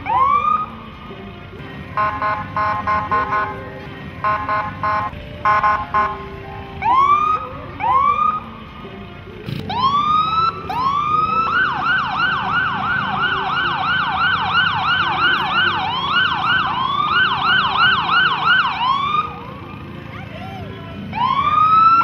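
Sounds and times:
siren whooping and yelping: 0:06.8 - 0:08.5, 0:09.7 - 0:19.4, 0:20.1 - 0:22.0.

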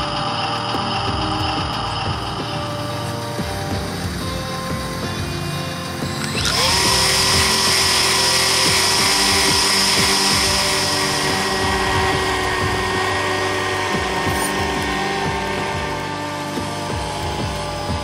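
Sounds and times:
small electric motor whining: 0:00.0 - 0:18.0
strong hiss: 0:00.0 - 0:18.0.

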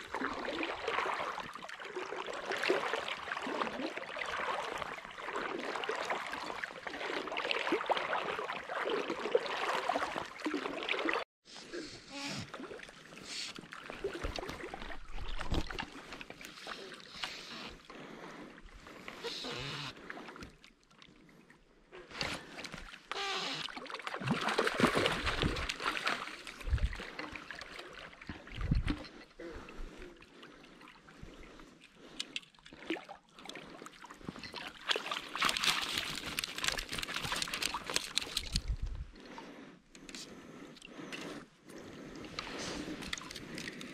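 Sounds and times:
water splashing close: 0:00.0 - 0:11.3, 0:12.3 - 0:17.6, 0:22.1 - 0:39.1
water splashing from thrashing fish: 0:23.6 - 0:29.0, 0:32.5 - 0:38.7.

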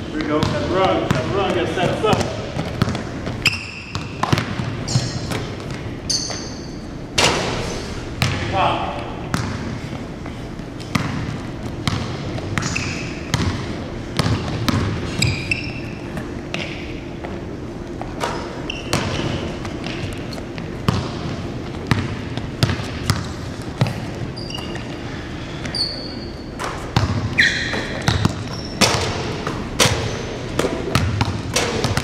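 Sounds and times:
basketballs bouncing on wooden floor: 0:00.0 - 0:06.5, 0:08.2 - 0:08.6, 0:09.2 - 0:09.8, 0:10.8 - 0:15.9, 0:18.0 - 0:24.9, 0:26.6 - 0:32.0
sneaker squeaks: 0:02.1 - 0:07.0, 0:11.9 - 0:13.7, 0:14.4 - 0:17.0, 0:18.0 - 0:20.7, 0:21.9 - 0:32.0.

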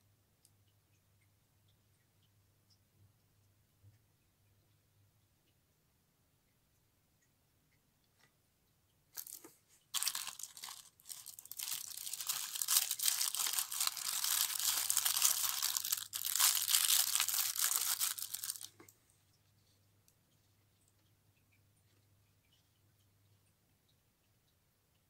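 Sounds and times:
tissue paper crinkling: 0:09.2 - 0:18.9.

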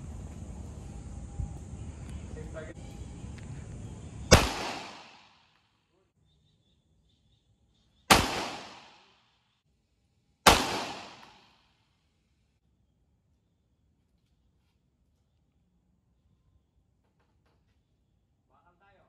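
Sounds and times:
pistol shots: 0:04.3 - 0:05.5, 0:08.1 - 0:09.2, 0:10.5 - 0:11.6.

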